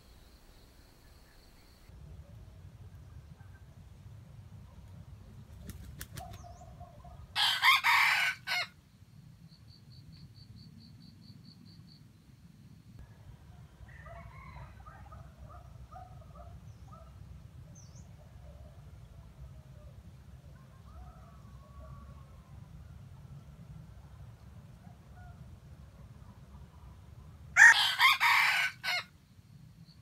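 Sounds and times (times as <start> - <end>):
rooster wings beating: 5.5 - 6.5
rooster crowing: 7.4 - 8.7, 13.8 - 15.5, 27.6 - 29.1.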